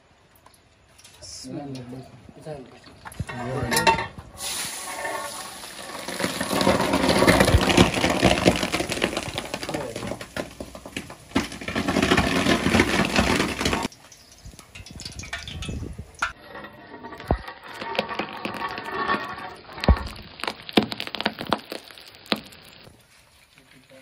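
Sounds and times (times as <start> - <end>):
boiling water hissing and bubbling: 0.8 - 24.0.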